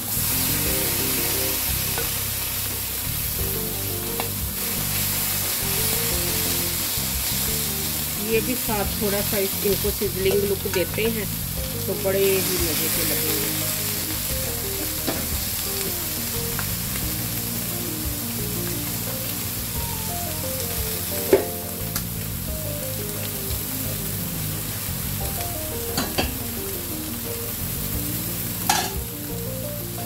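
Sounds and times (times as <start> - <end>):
vegetables sizzling on a griddle: 0.0 - 30.0.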